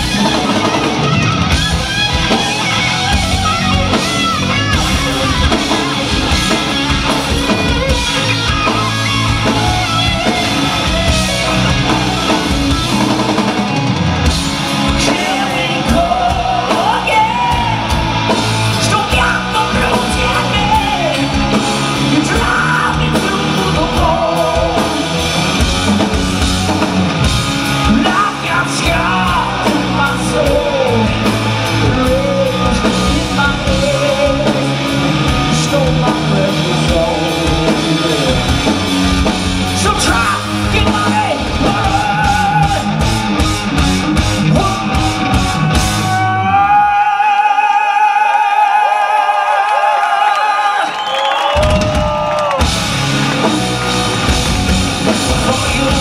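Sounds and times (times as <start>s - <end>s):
distorted electric guitar: 0.0s - 47.0s, 51.6s - 56.0s
hard rock band playing: 0.0s - 48.7s, 50.7s - 56.0s.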